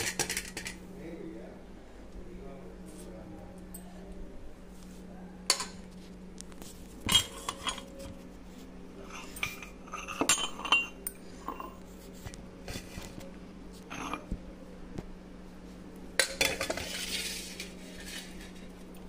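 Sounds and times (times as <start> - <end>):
spoon clinking against steel pots: 0.0 - 0.8, 5.5 - 5.8, 9.1 - 11.8
steady low hum: 0.0 - 19.0.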